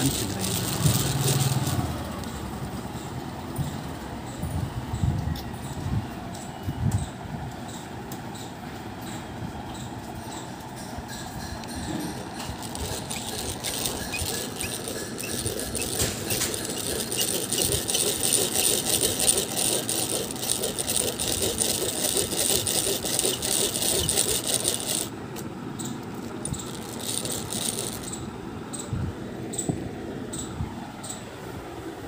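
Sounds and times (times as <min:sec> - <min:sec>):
hand drill gears rattling: 0:00.0 - 0:03.1, 0:11.1 - 0:25.2, 0:26.0 - 0:28.3
drill bit grinding into metal: 0:11.7 - 0:25.1.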